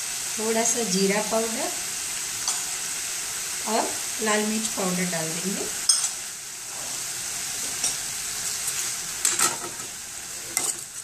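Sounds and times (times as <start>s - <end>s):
leaves sizzling in oil: 0.0s - 11.0s
spoon scraping and clinking on pan: 2.4s - 2.7s, 5.8s - 6.2s, 9.2s - 9.9s, 10.5s - 11.0s.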